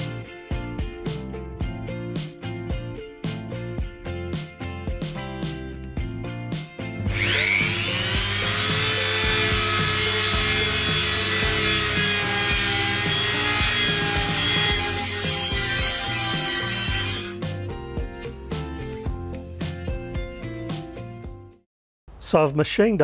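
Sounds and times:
background music with steady beat: 0.0s - 21.6s
rotary tool whining and cutting wood: 7.1s - 17.4s.

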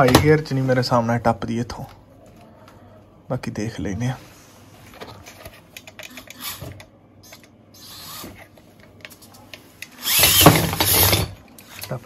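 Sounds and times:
gears running: 10.0s - 11.2s.

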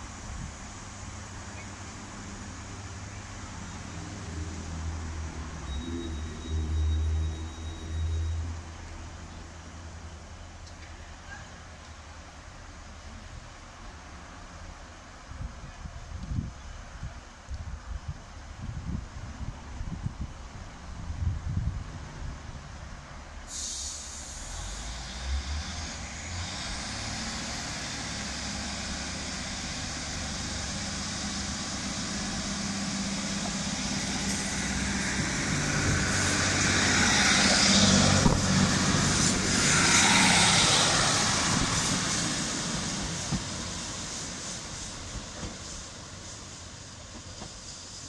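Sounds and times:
diesel train engines running: 21.8s - 48.0s
air hiss: 23.4s - 48.0s.

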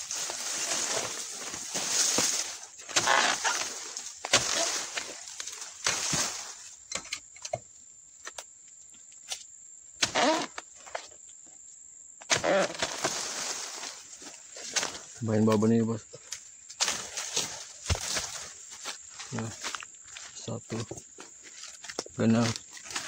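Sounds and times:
footsteps rustling through undergrowth: 0.0s - 6.8s, 12.4s - 23.0s.

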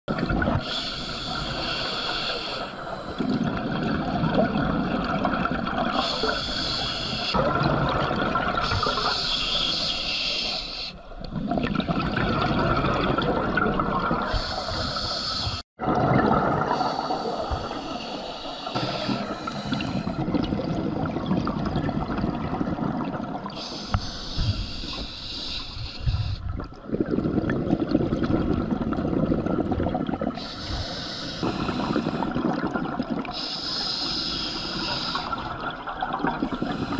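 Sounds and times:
hissing regulator inhales: 0.6s - 3.2s, 5.9s - 7.4s, 8.6s - 11.0s, 14.3s - 15.6s, 16.7s - 20.2s, 23.5s - 26.4s, 30.4s - 32.4s, 33.3s - 35.5s, 36.5s - 36.9s
exhaled bubbles rushing: 3.1s - 6.2s, 7.3s - 9.7s, 11.3s - 15.0s, 15.8s - 18.0s, 18.7s - 25.0s, 26.0s - 30.8s, 31.4s - 33.4s, 35.2s - 36.9s.

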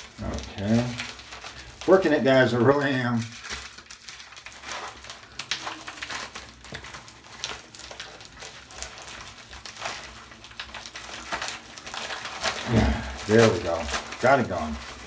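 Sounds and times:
packaging crinkling: 0.0s - 15.0s
small ticks and crackles: 0.0s - 15.0s.

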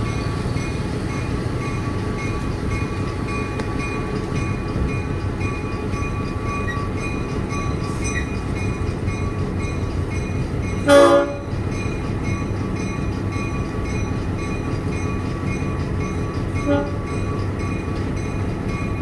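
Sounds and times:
diesel locomotive rumble: 0.0s - 19.0s
locomotive horn blast: 10.8s - 11.5s, 16.6s - 17.0s.

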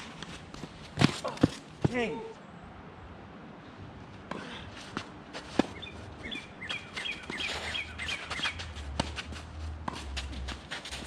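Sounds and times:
tennis ball hits: 5.4s - 5.9s
bird chirping: 5.7s - 8.7s.

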